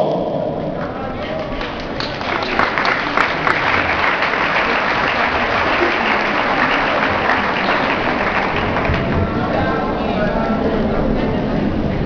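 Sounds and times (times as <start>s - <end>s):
audience applauding: 0.8s - 10.0s.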